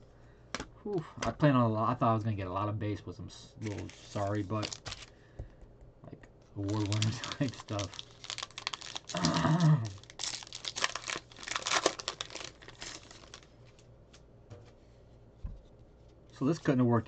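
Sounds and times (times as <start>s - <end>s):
plastic wrapper tearing and crinkling: 3.6s - 5.2s, 6.6s - 13.9s.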